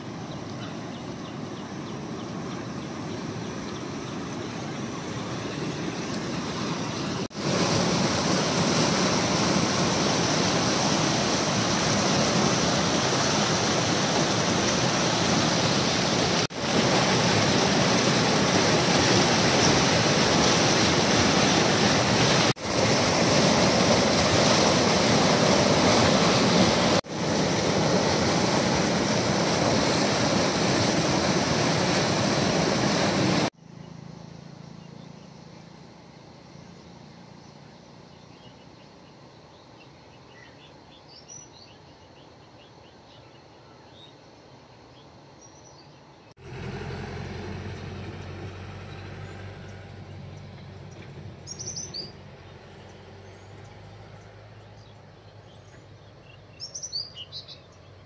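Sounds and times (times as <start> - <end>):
water rushing over boulders: 3.3 - 33.6.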